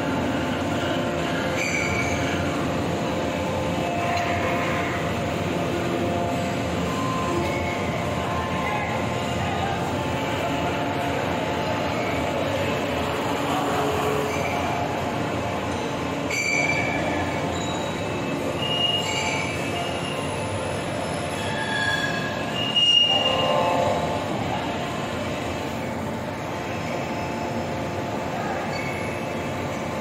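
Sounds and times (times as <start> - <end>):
high-pitched metallic squeals: 1.2 - 2.9, 13.5 - 15.1, 15.7 - 25.0, 28.4 - 29.8.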